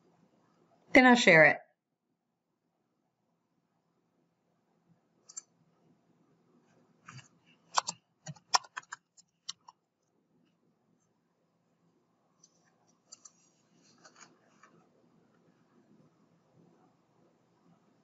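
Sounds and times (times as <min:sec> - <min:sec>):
faint low hum: 0:02.0 - 0:18.0
computer keyboard typing: 0:07.7 - 0:09.8.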